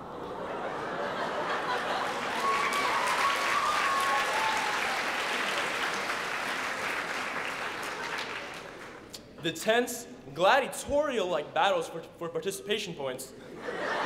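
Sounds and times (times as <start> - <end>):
audience applauding: 1.3 - 9.1.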